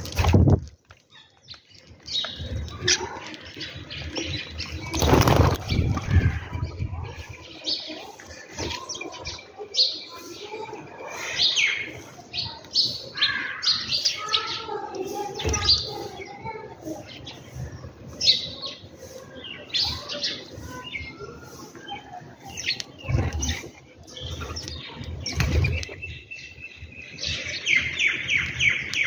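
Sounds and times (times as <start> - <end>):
sparrows chirping: 1.1 - 29.0
birds' wings flapping: 4.6 - 6.7, 24.4 - 26.0.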